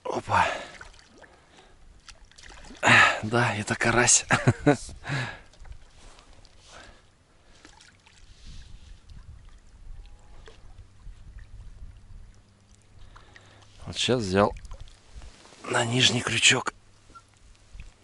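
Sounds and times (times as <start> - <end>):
water splashing and dripping: 0.4 - 3.3, 7.4 - 15.2.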